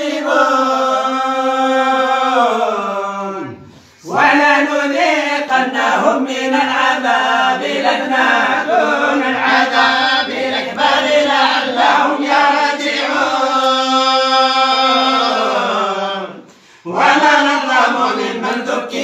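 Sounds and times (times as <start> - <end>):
voices chanting in unison: 0.0 - 19.0.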